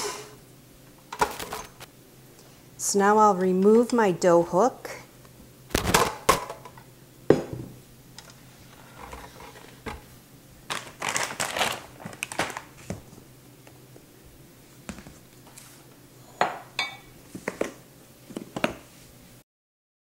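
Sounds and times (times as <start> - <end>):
canister knocking on stone countertop: 7.3 - 7.7.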